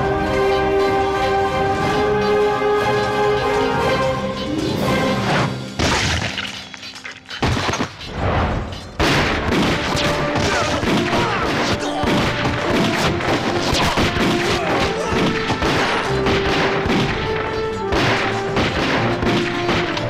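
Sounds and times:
dramatic orchestral film score: 0.0s - 20.0s
gunshots and impacts: 7.3s - 20.0s.

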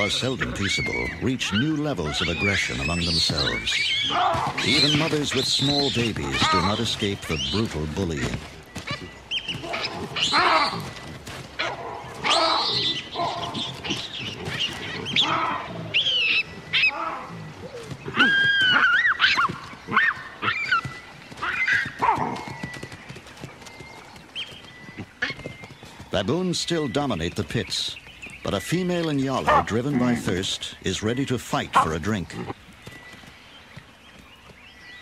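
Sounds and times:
baboons shrieking: 0.0s - 7.6s, 9.6s - 11.0s, 11.6s - 22.4s, 29.4s - 30.5s.

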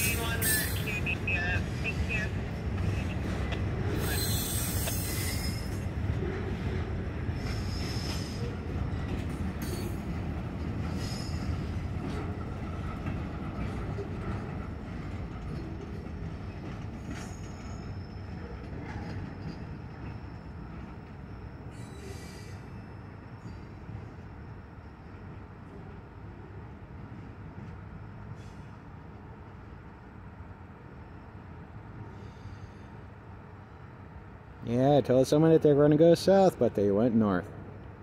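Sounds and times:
train clanks: 0.0s - 26.1s
train wheels rumbling: 0.0s - 29.7s
wheel squeals: 3.9s - 5.9s, 17.0s - 20.8s, 21.6s - 23.9s.

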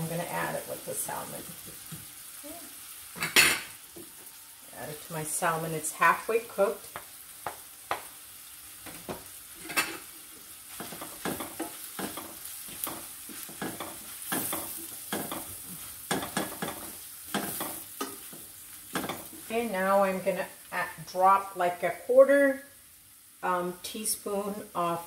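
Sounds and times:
fish sizzling in a skillet: 0.0s - 21.5s
wooden spoon scraping a pan: 8.8s - 19.5s.

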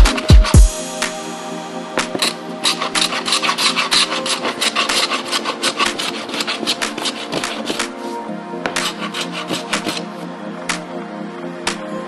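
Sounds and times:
hand plane rasping wood: 2.0s - 10.1s.

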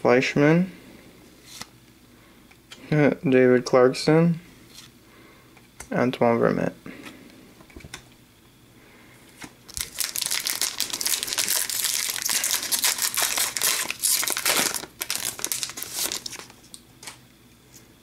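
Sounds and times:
wrapper tearing and crinkling: 9.7s - 16.6s.

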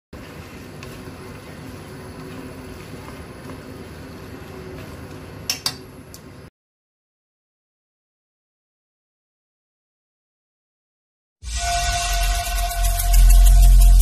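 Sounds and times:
utensil clicking on pan: 5.5s - 5.8s.

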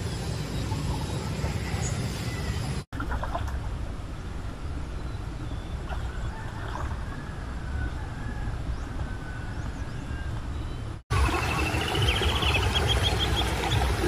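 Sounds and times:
birds chirping and whistling: 5.0s - 14.0s.

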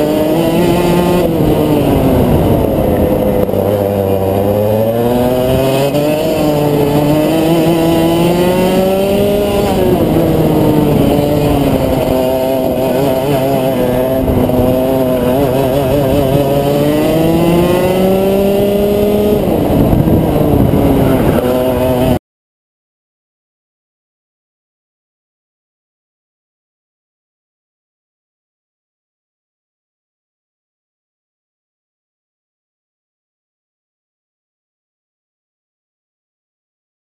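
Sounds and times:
kart engine revving: 0.0s - 22.2s.

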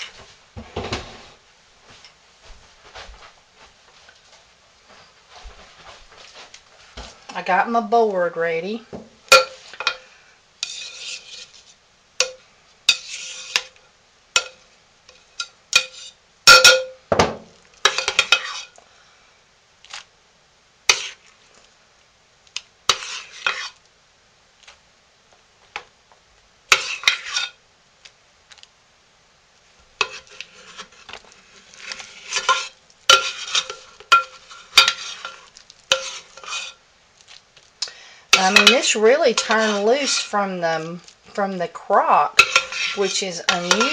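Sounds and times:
metal spoon scraping stoneware: 10.6s - 13.8s, 14.4s - 16.8s, 17.8s - 18.8s, 20.9s - 21.2s, 22.9s - 23.8s, 26.7s - 27.6s, 30.0s - 36.8s, 38.3s - 40.4s, 42.2s - 43.9s.

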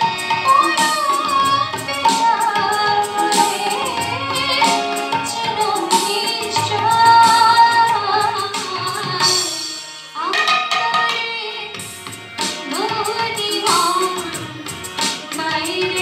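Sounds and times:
harmonium: 0.0s - 10.4s, 11.2s - 16.0s
woman singing: 0.0s - 11.8s, 12.4s - 16.0s
tabla: 0.0s - 16.0s
string instrument struck by sticks: 10.2s - 16.0s.

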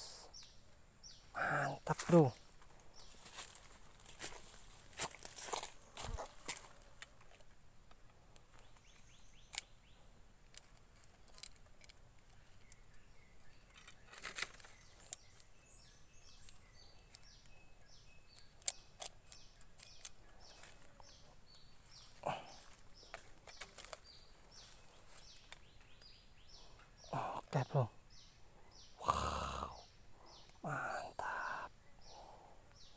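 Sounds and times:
rustling through grass and brush: 1.9s - 7.5s, 19.9s - 26.0s.

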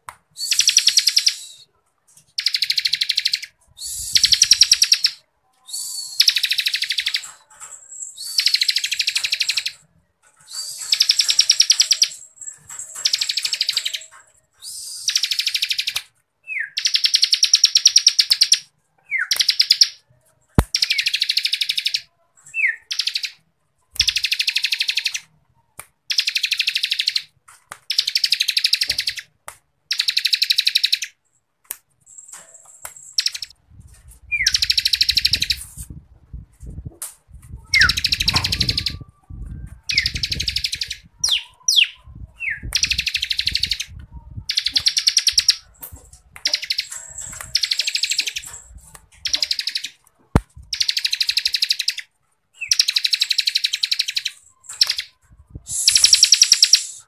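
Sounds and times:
bird rattling trill: 2.3s - 5.2s, 6.0s - 16.0s, 32.1s - 33.6s, 34.3s - 35.8s, 44.5s - 50.0s, 50.7s - 57.0s.

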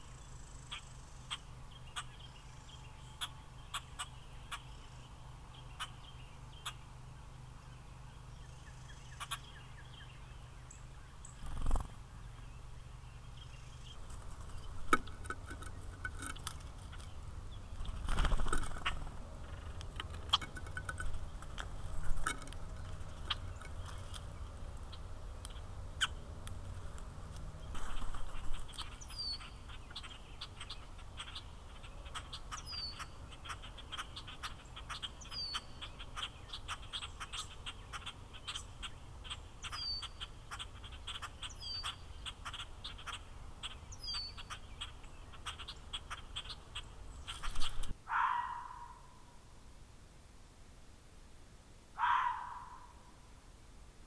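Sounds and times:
bird clicks and chirps: 8.9s - 9.5s, 13.7s - 48.0s.

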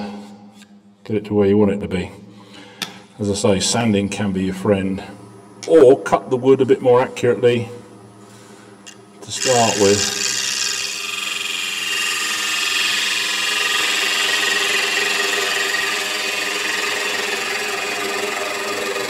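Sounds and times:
wood lathe humming: 9.2s - 19.0s.

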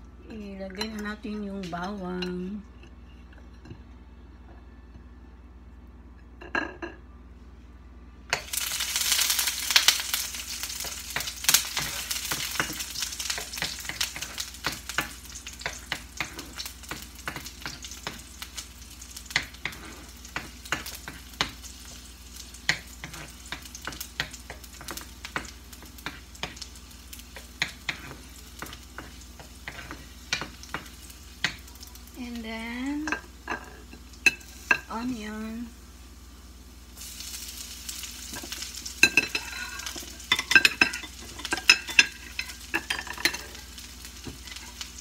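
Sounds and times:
garlic sizzling in hot oil: 8.4s - 45.0s
utensil scraping a pan: 38.3s - 43.6s.

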